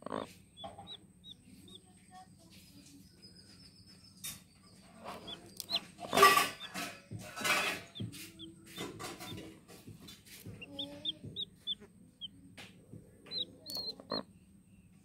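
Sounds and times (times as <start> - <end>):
hen clucking loudly: 0.0 - 1.8, 5.1 - 9.5, 10.5 - 11.9, 13.3 - 14.3
chicks peeping: 0.0 - 14.3.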